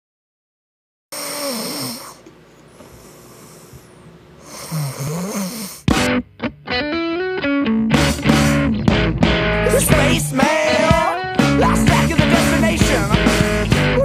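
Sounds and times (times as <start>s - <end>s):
person snoring: 1.1s - 5.9s.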